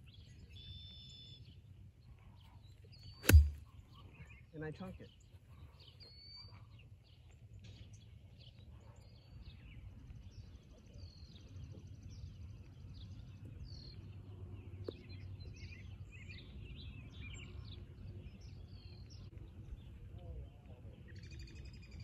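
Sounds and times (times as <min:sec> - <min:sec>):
songbirds chirping and trilling: 0:00.0 - 0:22.0.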